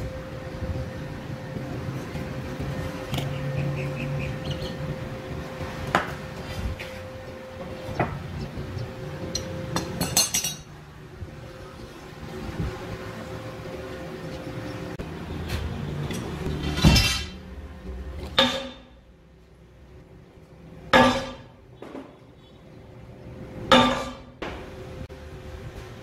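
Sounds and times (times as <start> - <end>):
steady hum: 0.0 - 26.0
metal tools clinking on steel: 9.3 - 10.7.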